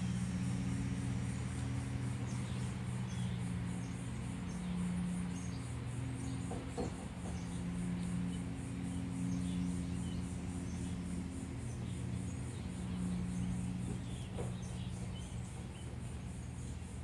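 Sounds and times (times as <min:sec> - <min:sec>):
insects trilling: 0:00.0 - 0:17.0
steady low hum: 0:00.0 - 0:17.0.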